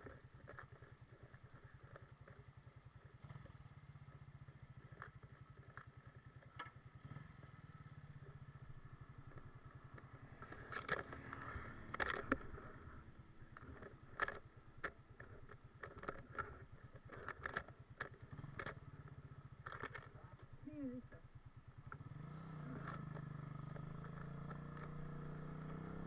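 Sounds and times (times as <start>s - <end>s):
motorcycle engine idling: 0.0s - 26.0s
sharp clacks and knocks: 4.6s - 6.9s, 9.1s - 20.5s.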